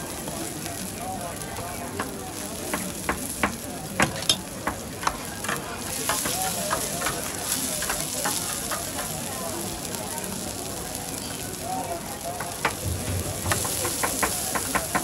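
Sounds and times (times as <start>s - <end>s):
chilies sizzling in oil: 0.0s - 15.0s
metal spatula scraping griddle: 4.0s - 9.3s.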